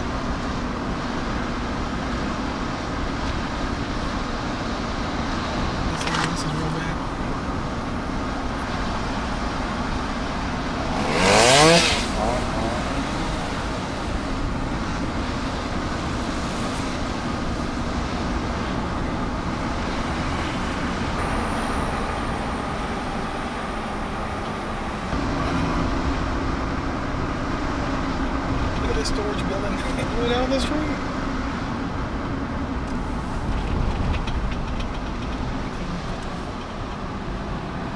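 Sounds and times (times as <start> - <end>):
car road noise: 0.0 - 37.9.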